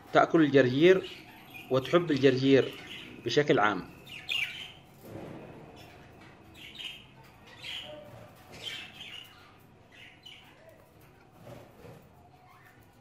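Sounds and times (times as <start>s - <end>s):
budgerigars chirping: 0.6s - 4.8s, 5.8s - 10.5s.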